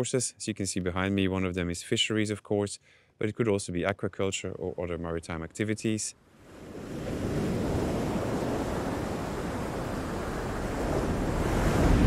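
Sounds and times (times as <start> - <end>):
wind: 0.0 - 12.0
ocean waves: 6.3 - 12.0.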